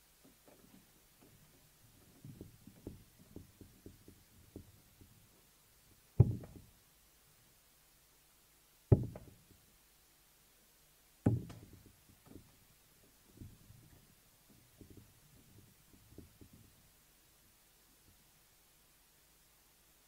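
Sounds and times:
faint small clicks and knocks: 0.2s - 5.4s, 11.2s - 16.9s.

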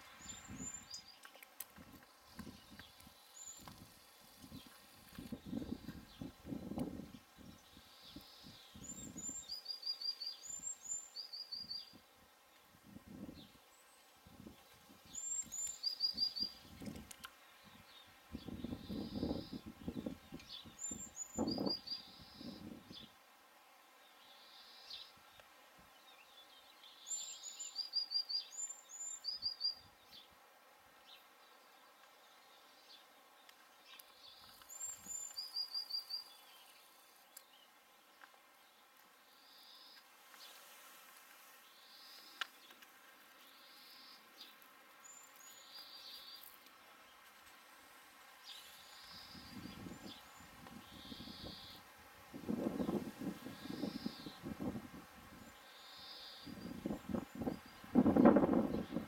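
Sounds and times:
small birds chirping: 0.0s - 23.2s, 23.9s - 30.4s, 31.0s - 59.0s
faint high chirping: 15.1s - 16.6s, 18.5s - 22.8s, 33.9s - 37.5s
low rustling noise: 30.2s - 55.6s.

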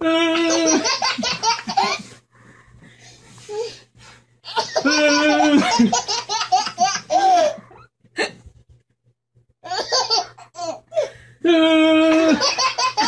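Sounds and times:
baby laughing: 0.3s - 2.1s, 4.5s - 7.8s, 9.6s - 10.8s, 12.0s - 13.0s.

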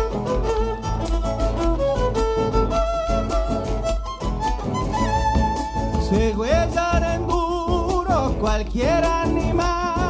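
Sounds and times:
violin melody: 0.0s - 7.1s
guitar: 0.0s - 10.0s
steady drum beat: 2.0s - 10.0s.

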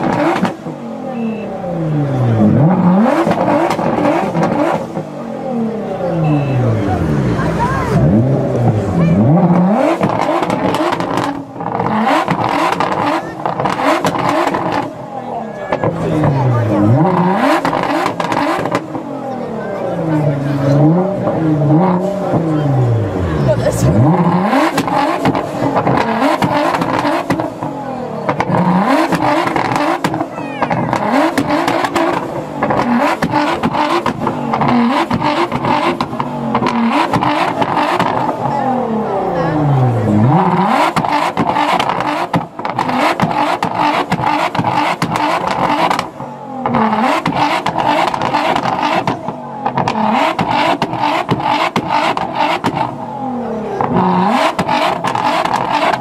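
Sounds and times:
car engine revving: 0.0s - 56.0s
exhaust pops crackling: 28.3s - 38.6s, 40.4s - 53.1s, 53.8s - 56.0s
exhaust pops and cracks: 40.9s - 52.9s.

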